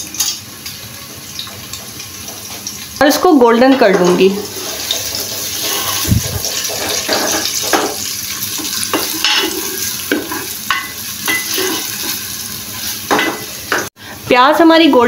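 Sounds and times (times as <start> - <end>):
onions sizzling in a pot: 0.0 - 15.0
wooden spoon scraping a pot: 4.3 - 10.5, 11.3 - 12.2.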